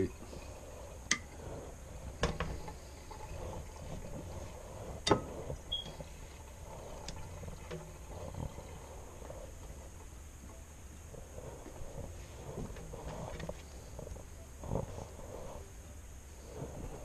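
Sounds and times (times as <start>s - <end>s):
low steady background: 0.0s - 17.0s.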